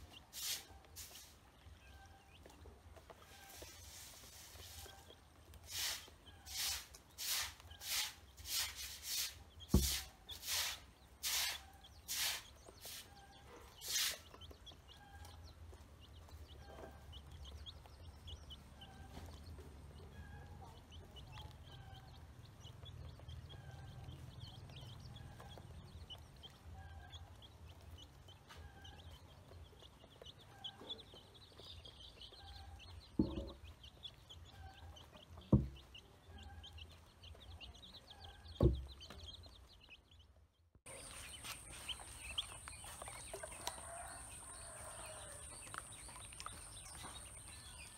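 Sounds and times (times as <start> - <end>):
ducklings peeping: 0.0 - 47.9
sharp thumps: 9.7 - 10.1, 33.2 - 33.7.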